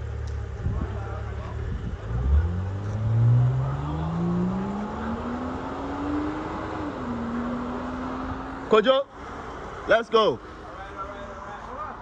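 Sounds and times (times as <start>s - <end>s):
car accelerating hard: 0.6s - 9.0s.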